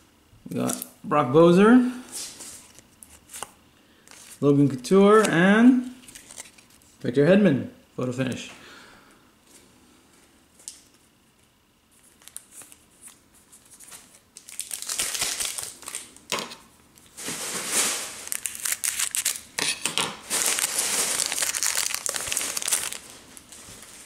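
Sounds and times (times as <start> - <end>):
wrapper crinkling and tearing: 6.0 - 7.0, 12.0 - 19.6, 20.2 - 24.0.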